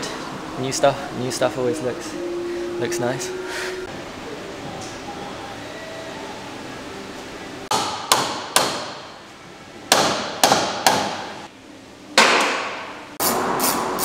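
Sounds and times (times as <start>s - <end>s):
hammer striking steel: 7.7s - 9.2s, 9.9s - 11.4s.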